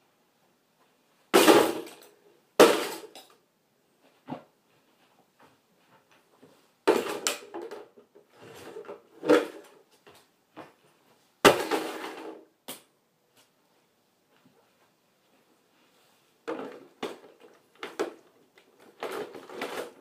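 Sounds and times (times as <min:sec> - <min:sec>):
plastic toys knocking and rattling: 0:01.3 - 0:03.4, 0:06.9 - 0:09.8, 0:11.4 - 0:12.9, 0:16.4 - 0:20.0.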